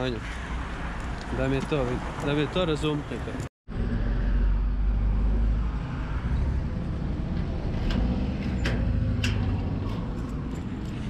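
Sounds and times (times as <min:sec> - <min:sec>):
keys jingling: 0:09.8 - 0:11.0.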